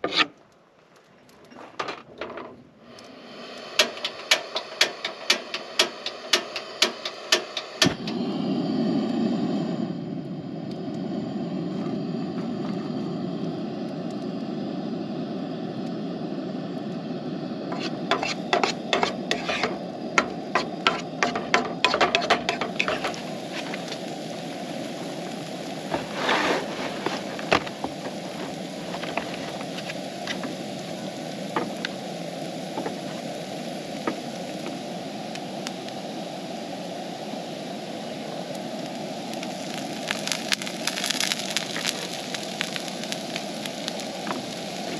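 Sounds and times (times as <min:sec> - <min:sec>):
wooden spatula scraping pan: 0:00.0 - 0:00.3, 0:17.7 - 0:24.0, 0:25.9 - 0:30.5
camp stove burner rush: 0:02.8 - 0:44.9
onions sizzling in a pan: 0:16.1 - 0:44.9.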